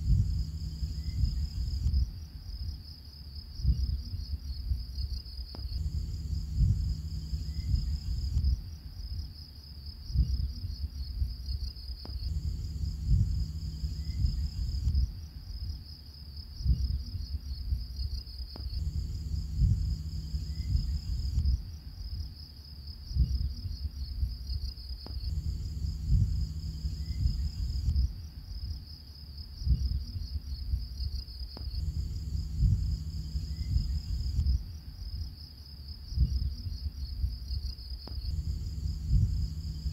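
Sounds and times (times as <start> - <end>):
low irregular pulses: 0.0 - 2.8, 5.5 - 9.3, 10.1 - 15.8, 16.6 - 22.4, 23.1 - 28.8, 31.6 - 35.2, 36.2 - 39.9
crickets chirping: 0.0 - 39.9.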